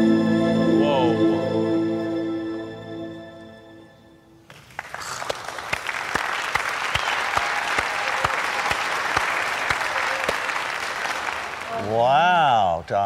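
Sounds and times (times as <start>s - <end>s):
audience applauding: 4.5s - 12.7s.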